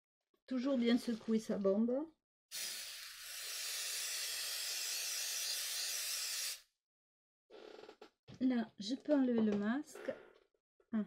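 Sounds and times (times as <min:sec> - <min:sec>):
aerosol spray can hissing: 0:02.5 - 0:06.7.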